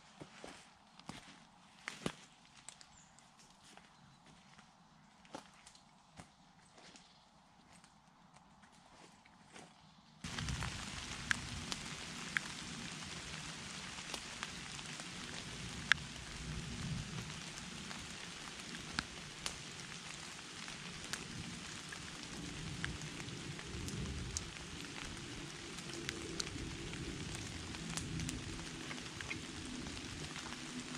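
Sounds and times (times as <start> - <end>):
wood fire crackling and popping: 10.2 - 30.9.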